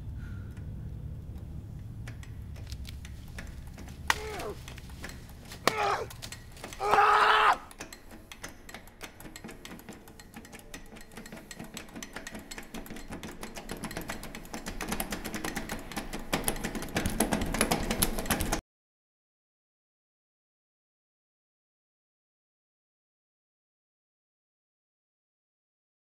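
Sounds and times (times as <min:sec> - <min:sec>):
rapid irregular clicking: 0:00.0 - 0:18.6
man yelling: 0:04.1 - 0:04.6, 0:05.6 - 0:06.1, 0:06.8 - 0:07.7.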